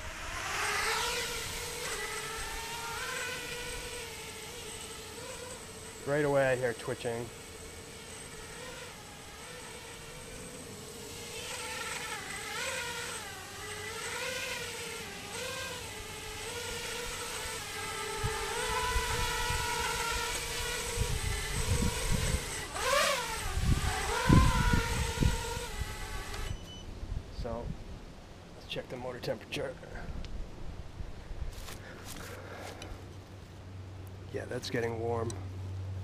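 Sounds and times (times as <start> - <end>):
quadcopter motors whining: 0.0 - 26.9.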